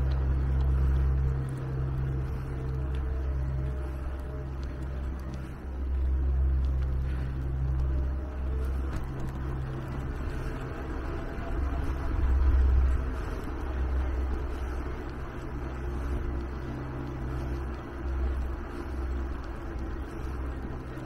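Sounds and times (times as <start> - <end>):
wind and road noise rumble: 0.0 - 21.0.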